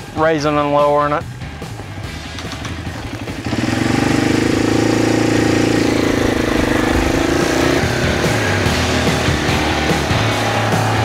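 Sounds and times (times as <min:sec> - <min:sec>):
atv engine running: 0:01.3 - 0:11.0.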